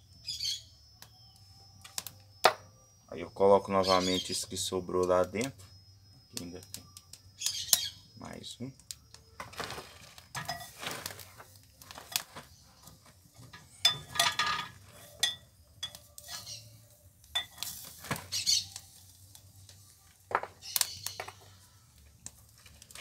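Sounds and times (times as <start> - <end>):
metal clinks and scrapes: 9.4 - 18.9.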